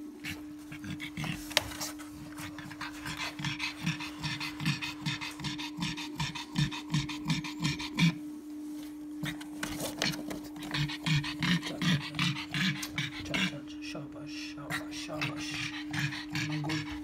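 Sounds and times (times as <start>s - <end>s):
dog panting rapidly: 0.2s - 8.2s, 9.6s - 13.6s, 14.7s - 17.0s.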